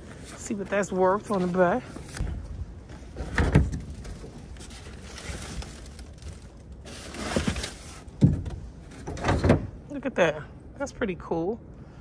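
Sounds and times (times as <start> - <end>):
rummaging in plastic bin: 3.0 - 8.4.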